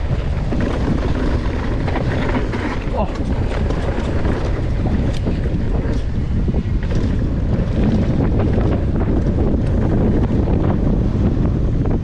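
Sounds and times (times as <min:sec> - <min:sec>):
bike knocks and rattles: 0:00.0 - 0:12.0
wind buffeting microphone: 0:00.0 - 0:12.0.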